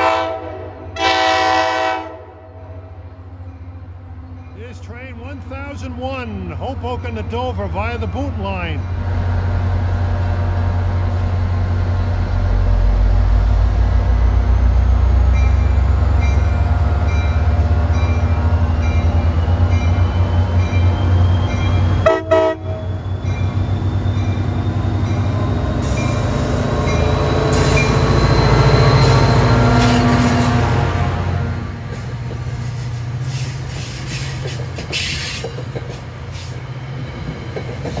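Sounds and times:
train horn chime: 0.0s - 3.0s, 22.0s - 23.6s
diesel locomotive engine drone: 0.0s - 38.0s.

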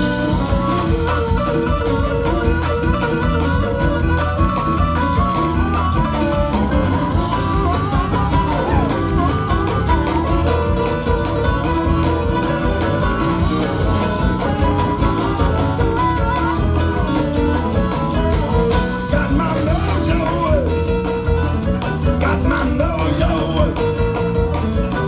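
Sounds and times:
blues band playing: 0.0s - 25.0s
person singing into microphone: 18.1s - 20.8s, 22.1s - 24.0s.

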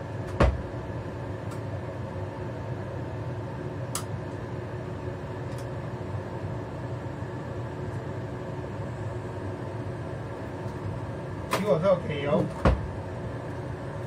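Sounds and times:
fan hum: 0.0s - 14.0s
gas hob igniter clicking: 3.9s - 4.1s.

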